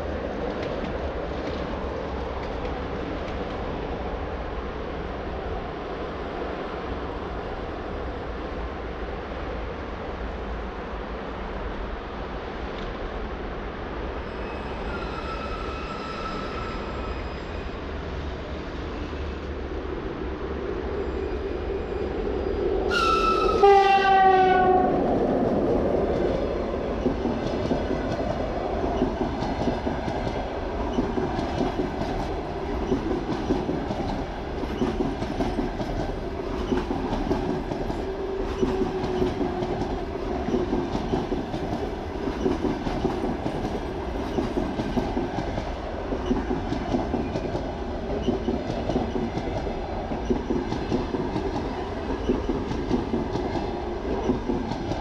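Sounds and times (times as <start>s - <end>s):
train passing at speed: 0.0s - 55.0s.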